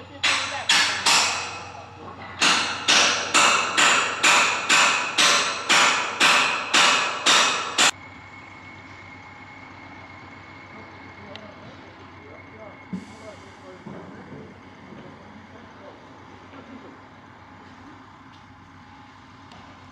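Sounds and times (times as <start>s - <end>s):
hammer striking metal: 0.2s - 7.9s
thin high whine: 7.8s - 15.9s.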